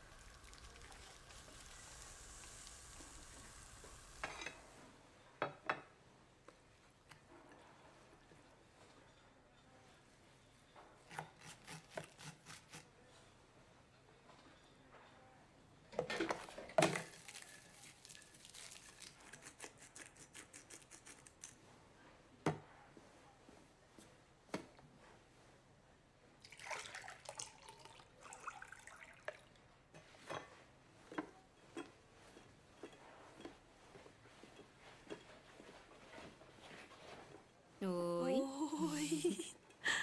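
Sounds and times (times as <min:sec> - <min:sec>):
rustling and scraping: 0:30.0 - 0:37.7.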